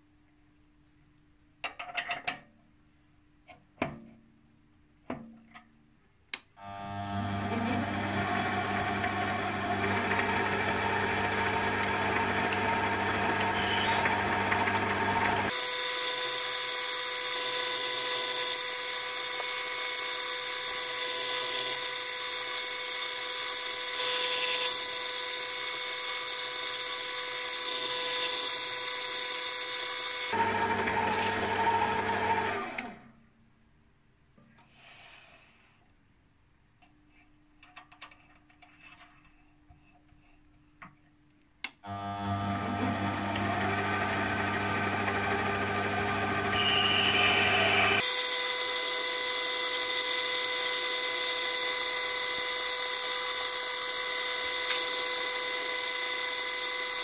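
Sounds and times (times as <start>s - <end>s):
lathe motor whine: 7.1s - 32.9s, 41.9s - 57.0s
drill boring into brass: 8.1s - 30.4s, 45.1s - 57.0s.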